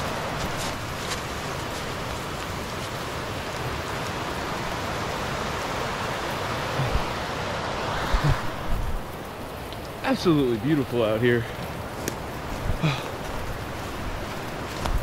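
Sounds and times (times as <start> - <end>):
creek water rushing over rocks: 0.0 - 15.0.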